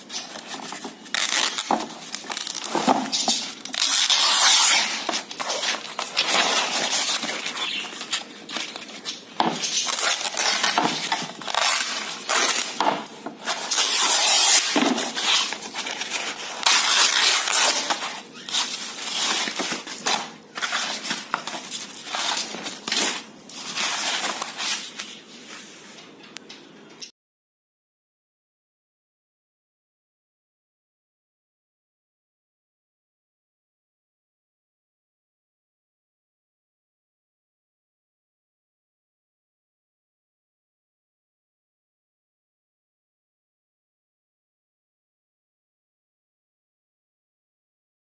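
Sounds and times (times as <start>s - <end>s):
canvas ripping: 0.3s - 8.3s, 9.4s - 25.0s.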